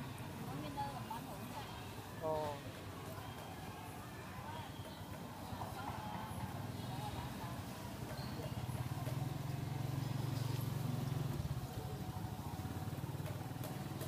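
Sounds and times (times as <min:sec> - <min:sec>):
small engine rumbling: 0:07.6 - 0:14.0.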